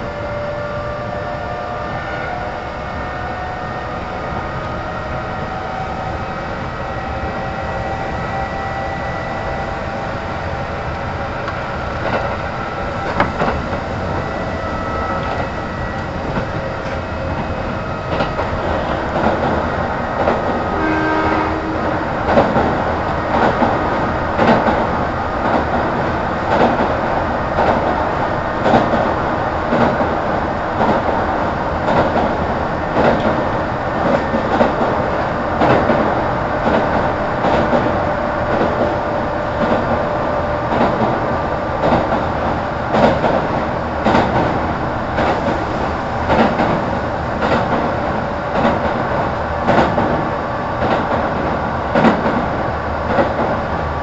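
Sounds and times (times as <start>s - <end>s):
train wheels rumbling: 0.0s - 54.0s.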